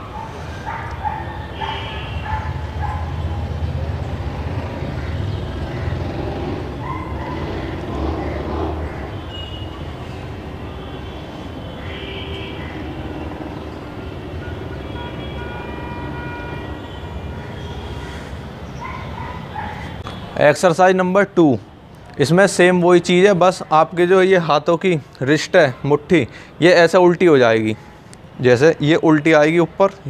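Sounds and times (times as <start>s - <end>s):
dog barking: 0.0s - 3.5s, 6.8s - 7.7s, 18.8s - 20.0s.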